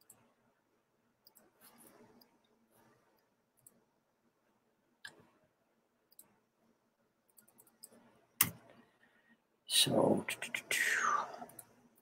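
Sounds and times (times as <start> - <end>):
keyboard and mouse clicks: 6.1 - 6.4, 7.3 - 8.7.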